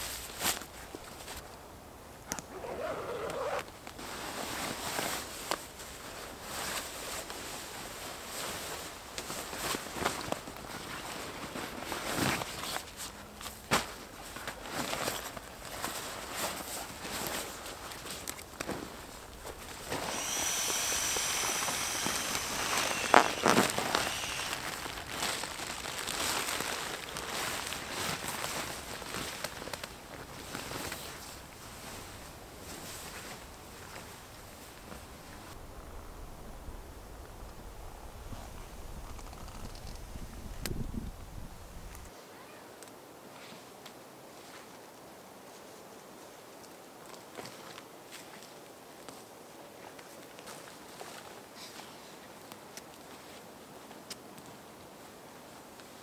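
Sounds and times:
zipper: 2.3s - 3.7s, 19.4s - 25.4s
nylon gear rustling: 2.4s - 35.5s
sleeping pad crinkling: 2.4s - 35.6s
loud crackles: 18.6s - 28.0s.

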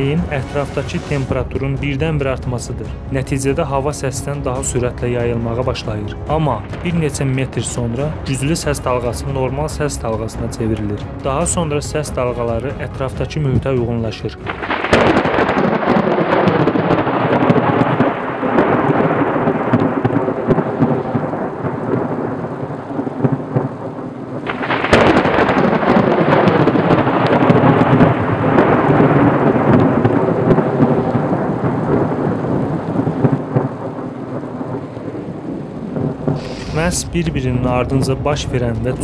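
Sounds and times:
steady rain: 0.0s - 39.0s
thunder rumbling: 0.0s - 39.0s
sharp thunderclap: 14.5s - 39.0s.

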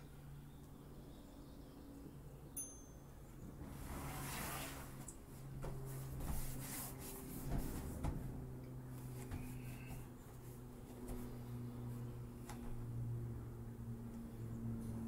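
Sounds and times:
steady low hum: 0.0s - 15.0s
person shifting on foam mats: 3.7s - 8.4s, 9.0s - 11.5s.

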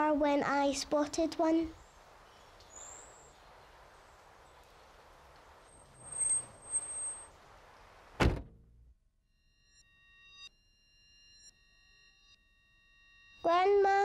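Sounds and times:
faint steady hiss: 0.0s - 8.3s.

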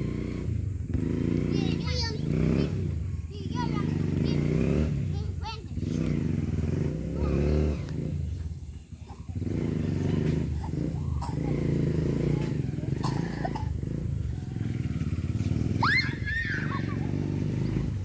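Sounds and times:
engine idling: 0.0s - 18.0s
child shouting: 1.5s - 6.1s, 7.1s - 7.9s, 15.8s - 17.6s.

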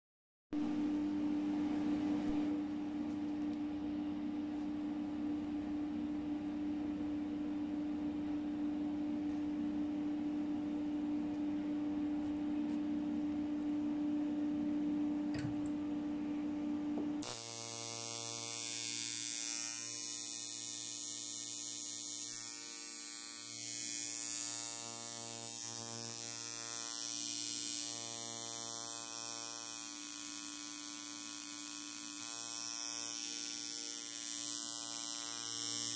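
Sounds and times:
tattoo machine buzzing: 17.2s - 35.9s.

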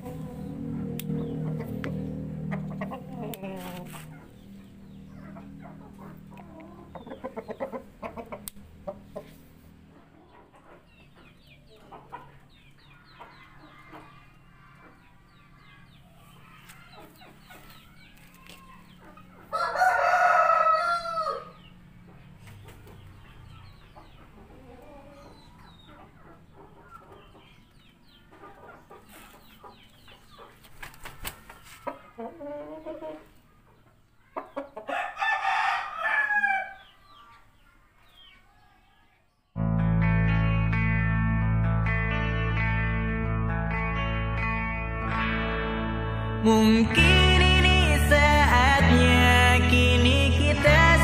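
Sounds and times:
chicken clucking: 0.0s - 39.3s
rooster crowing: 19.5s - 21.6s, 34.9s - 36.9s.

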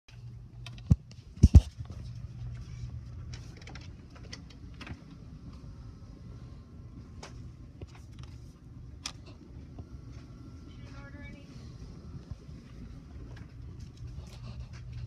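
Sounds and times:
low steady hum: 0.1s - 15.0s.

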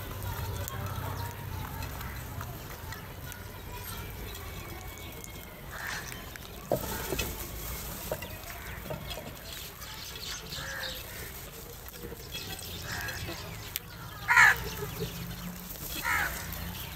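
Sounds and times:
crows pecking clay bowls: 0.0s - 16.9s
crow calls: 12.8s - 13.5s, 14.2s - 14.8s, 16.0s - 16.6s.

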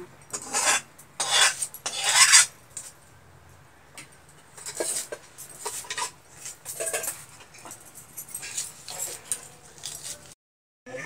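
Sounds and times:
blade scraping onion skin: 0.4s - 2.5s, 8.5s - 10.3s.

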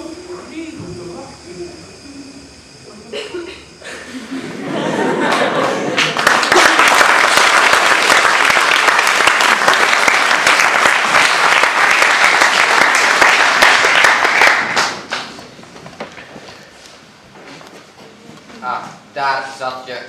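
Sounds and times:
audience applauding: 5.2s - 15.4s.

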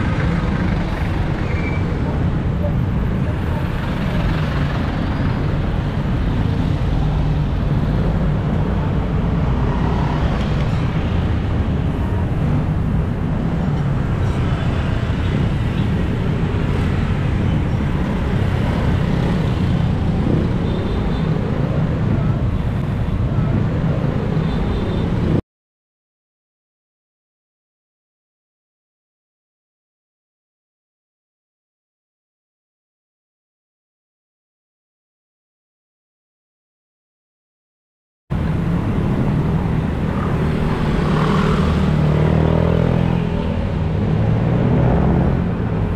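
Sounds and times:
car engines: 0.0s - 25.4s, 38.3s - 45.9s
motorcycle engines: 0.0s - 25.4s, 38.3s - 45.9s
road noise: 0.0s - 25.4s, 38.3s - 45.9s.

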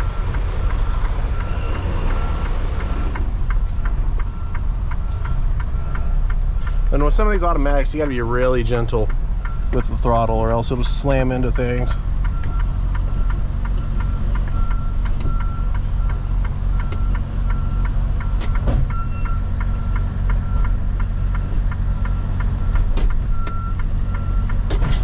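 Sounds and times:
reversing beeps: 0.0s - 6.2s, 11.7s - 24.7s
diesel truck engine running: 0.0s - 25.0s.

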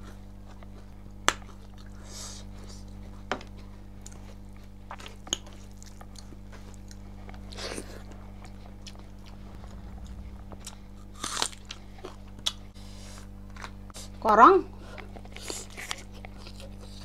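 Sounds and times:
person chewing food: 0.0s - 9.8s, 14.9s - 17.0s
steady low hum: 0.0s - 17.0s.

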